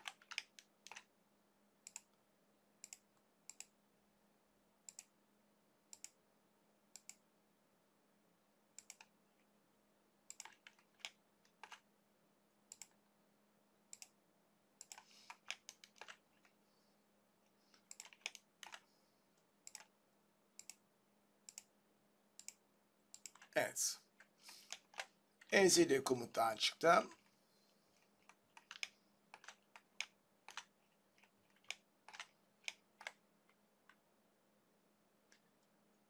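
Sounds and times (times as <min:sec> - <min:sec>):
computer mouse clicking: 0:00.0 - 0:01.1, 0:01.8 - 0:02.2, 0:02.8 - 0:03.8, 0:04.9 - 0:05.1, 0:05.9 - 0:06.2, 0:07.0 - 0:07.2, 0:08.8 - 0:09.2, 0:10.3 - 0:11.8, 0:12.7 - 0:13.0, 0:13.9 - 0:14.2, 0:14.8 - 0:16.6, 0:17.7 - 0:18.9, 0:19.6 - 0:19.9, 0:20.6 - 0:20.8, 0:21.5 - 0:21.7, 0:22.4 - 0:23.6, 0:24.2 - 0:25.5, 0:28.0 - 0:34.0
faint low hum: 0:00.0 - 0:36.0.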